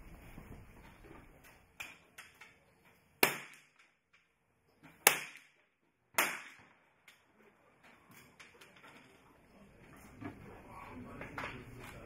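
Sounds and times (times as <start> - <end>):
pistol shots echoing: 3.2 - 3.8, 5.0 - 5.6, 6.2 - 6.8.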